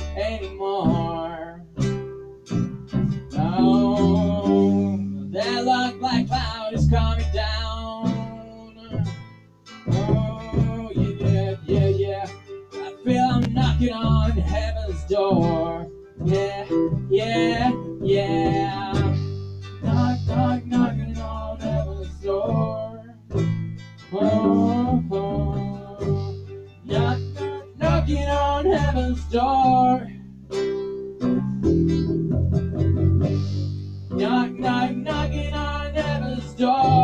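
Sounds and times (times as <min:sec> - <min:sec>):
electric bass guitar: 0:00.0 - 0:37.0
strummed acoustic guitar: 0:00.0 - 0:37.0
woman singing: 0:17.1 - 0:19.2.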